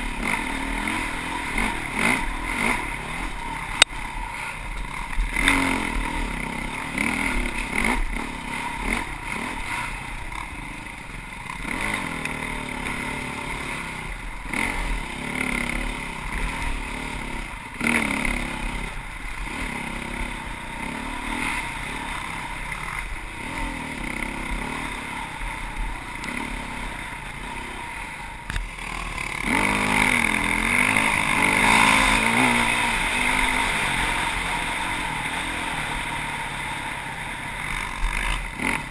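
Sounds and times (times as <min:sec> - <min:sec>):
motorcycle engine revving: 0:00.0 - 0:38.9
sharp knocks from rough trail: 0:28.4 - 0:30.2.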